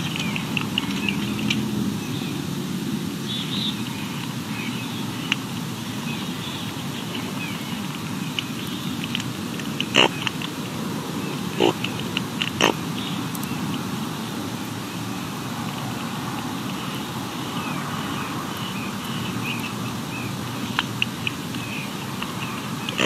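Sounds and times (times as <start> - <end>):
sharp clicks: 6.6 - 10.8.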